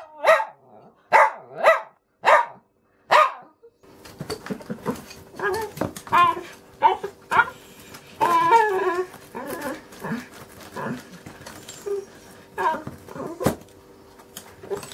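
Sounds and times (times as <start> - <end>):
small dog barking: 0.0 - 3.6.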